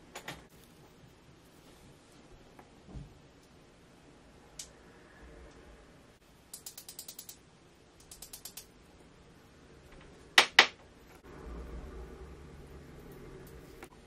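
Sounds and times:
watch ratchet wheel clicks: 6.5s - 7.4s, 8.0s - 8.7s.

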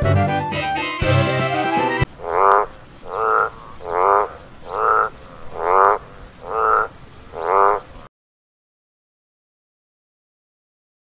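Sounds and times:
frog croaking: 2.0s - 8.1s.

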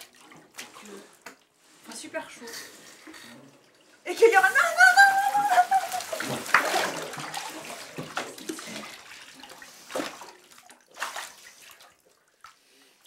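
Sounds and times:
shower spraying into bathtub: 4.1s - 8.9s
child crying out: 4.4s - 6.2s.

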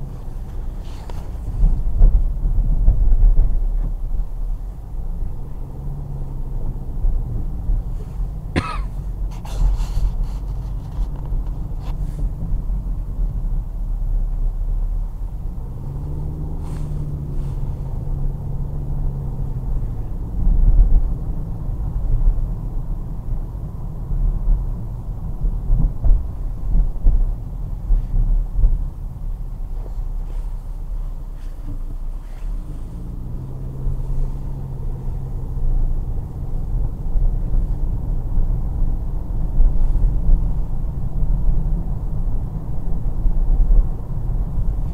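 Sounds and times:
car engine and road rumble: 0.0s - 44.9s.

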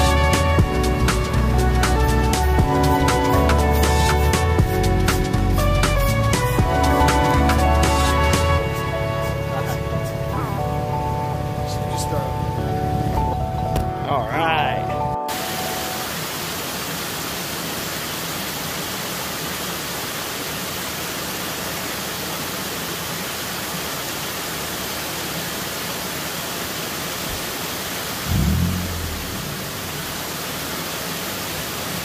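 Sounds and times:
creek water rushing over rocks: 15.3s - 32.0s.

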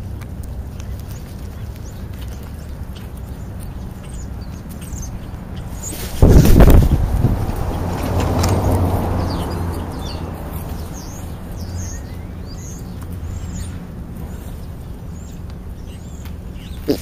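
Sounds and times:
birds chirping: 0.0s - 17.0s
van passing by: 4.1s - 17.0s.

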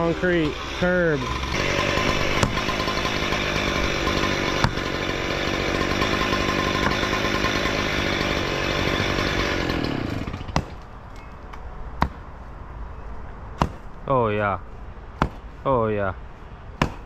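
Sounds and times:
concrete cut-off saw running: 0.0s - 10.6s.

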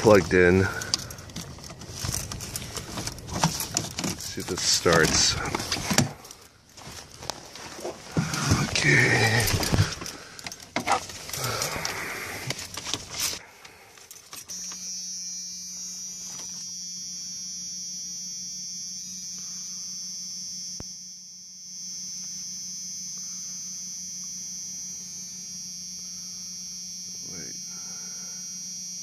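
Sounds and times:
handling clicks and knocks: 0.0s - 11.4s, 12.4s - 13.4s
electrical hum: 0.0s - 29.0s
high whine: 0.0s - 29.0s.

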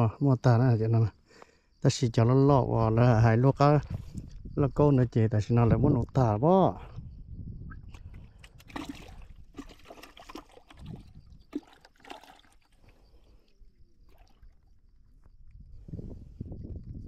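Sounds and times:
water splashing and trickling: 7.9s - 15.4s.

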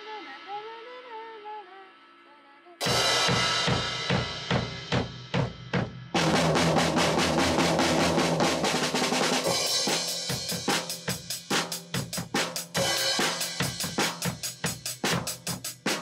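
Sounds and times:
music: 0.0s - 16.0s
cymbal crash: 2.8s - 15.4s
drum kit playing a beat: 2.8s - 16.0s.

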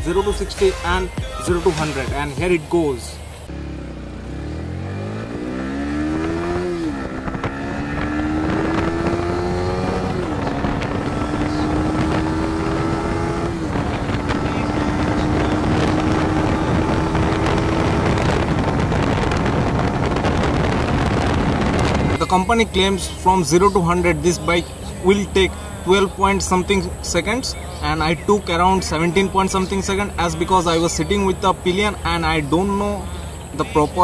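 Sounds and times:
motorcycle engine accelerating: 3.4s - 33.8s
wind on microphone: 4.6s - 22.4s.

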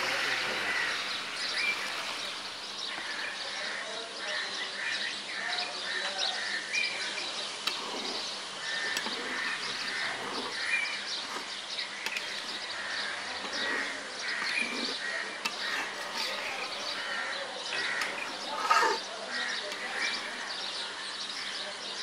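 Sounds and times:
even hiss: 0.0s - 3.8s
small birds chirping: 0.0s - 22.0s
metal spatula stirring in pan: 7.5s - 21.7s.

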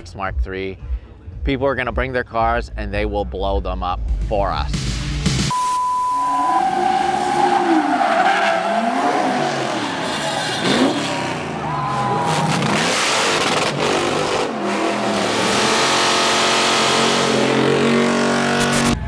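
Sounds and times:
tires squealing: 6.2s - 18.8s
car engines revving: 6.3s - 19.0s.

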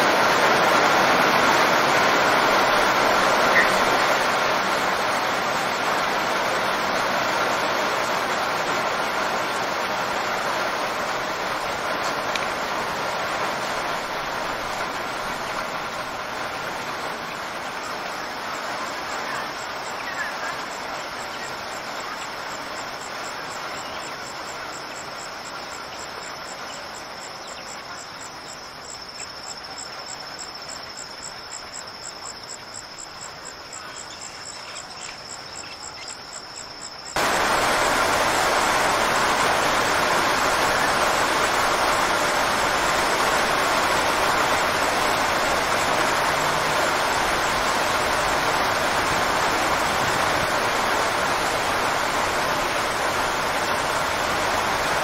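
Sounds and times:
rain hiss: 0.0s - 55.0s.

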